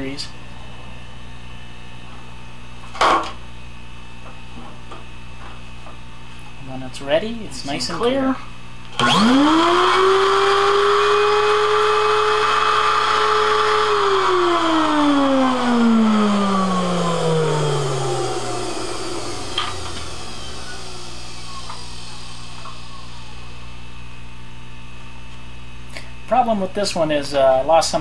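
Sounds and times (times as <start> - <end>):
suction motor whining: 9.0 - 23.8.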